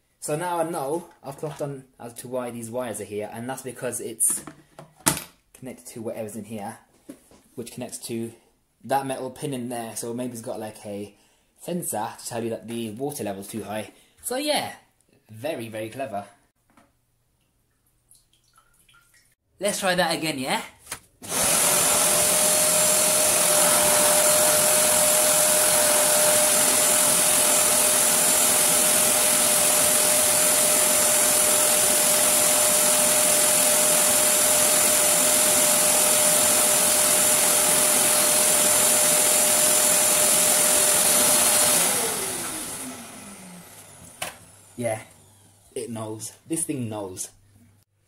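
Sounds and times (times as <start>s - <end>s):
motor winding down: 21.2s - 45.8s
vacuum cleaner running: 21.2s - 46.1s.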